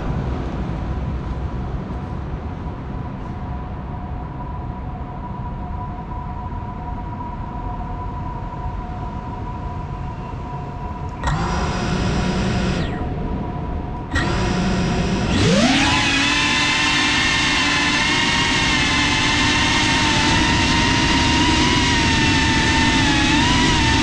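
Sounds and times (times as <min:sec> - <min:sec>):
low background rumble: 0:10.9 - 0:24.0
drone motors spinning: 0:11.1 - 0:24.0.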